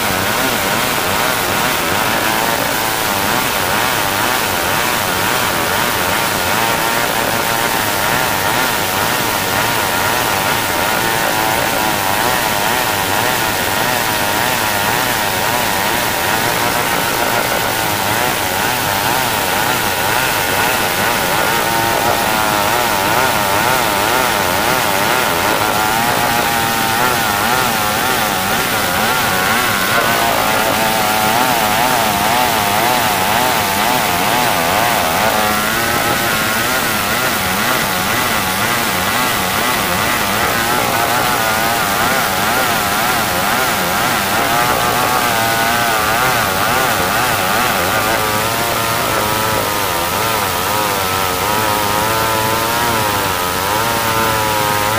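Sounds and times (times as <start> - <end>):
chainsaw cutting timber: 0.0 - 54.9.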